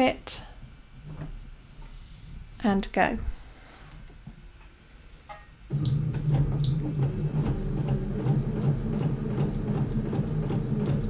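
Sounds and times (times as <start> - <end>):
sewing machine motor humming: 5.7 - 11.0.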